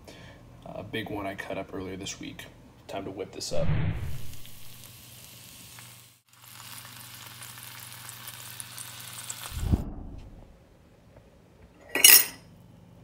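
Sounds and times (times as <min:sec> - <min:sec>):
steaks sizzling in a pan: 0:04.8 - 0:09.6.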